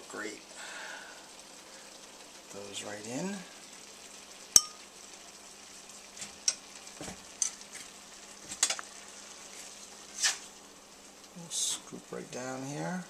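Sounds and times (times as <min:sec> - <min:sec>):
food sizzling in a pan: 0:00.0 - 0:13.0
utensil scraping against pan: 0:09.4 - 0:10.5.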